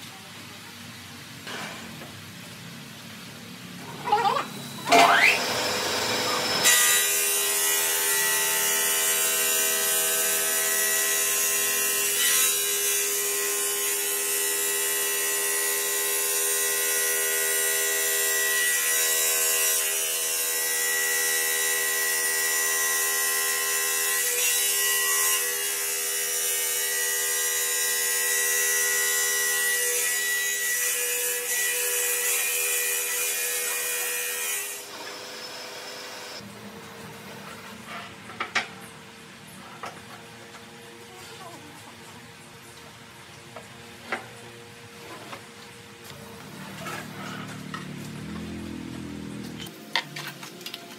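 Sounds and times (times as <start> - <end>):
saw blade cutting stone: 4.1 - 36.4.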